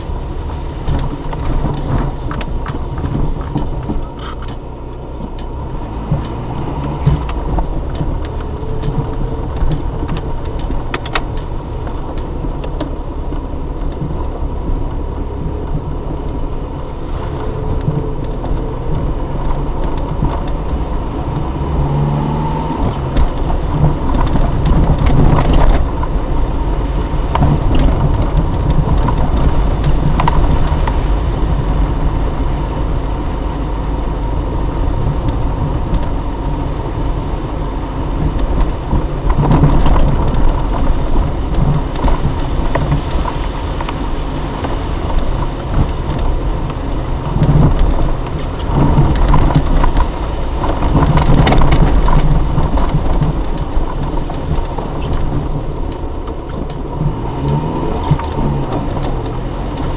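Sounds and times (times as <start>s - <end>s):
car engine and tyres rumbling: 0.0s - 59.9s
clicks and rattles: 0.8s - 15.0s, 22.8s - 26.3s, 38.2s - 59.9s.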